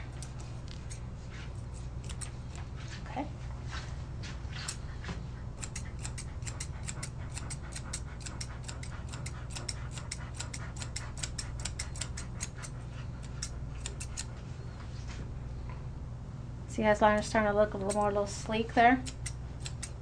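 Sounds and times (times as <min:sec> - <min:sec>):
shears snipping hair: 0:00.0 - 0:03.2, 0:04.2 - 0:04.8, 0:05.6 - 0:14.4, 0:17.0 - 0:20.0
steady low hum: 0:00.0 - 0:20.0.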